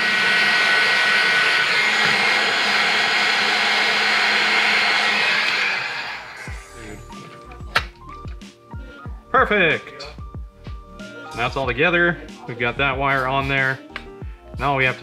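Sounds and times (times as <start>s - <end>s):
heat gun blowing air: 0.0s - 6.6s.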